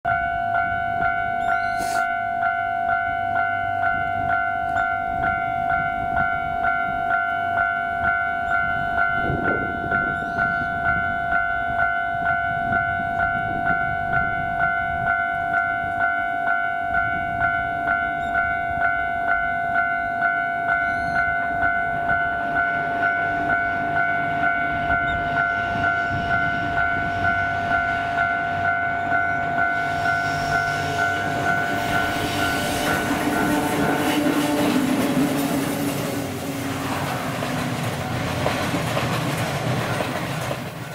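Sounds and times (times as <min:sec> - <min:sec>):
level crossing warning bell: 0:00.1 - 0:38.3
train rumble: 0:00.1 - 0:40.9.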